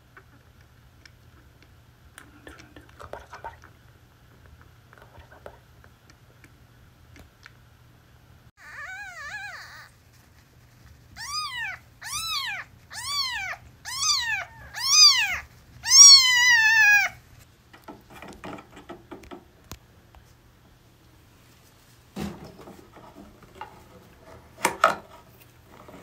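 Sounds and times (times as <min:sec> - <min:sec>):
kitten mewing: 0:08.6 - 0:10.0, 0:11.1 - 0:17.2
faint rustling: 0:08.8 - 0:17.5.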